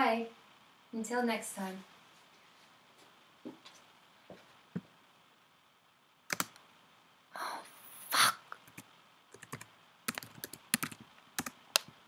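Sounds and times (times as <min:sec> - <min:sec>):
fingers tapping laptop keys: 0:06.3 - 0:06.6, 0:08.6 - 0:12.0.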